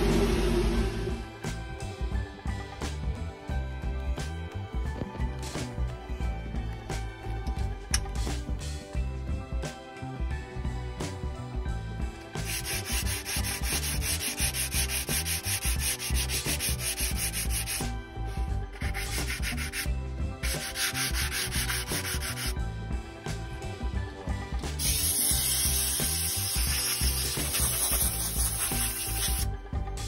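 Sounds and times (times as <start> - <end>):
sanding sponge rubbing metal: 12.4 - 22.6, 24.8 - 29.5.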